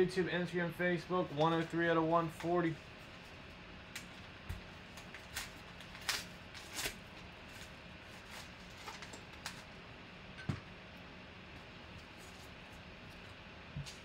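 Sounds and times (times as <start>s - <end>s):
paper envelope tearing: 5.0s - 9.1s.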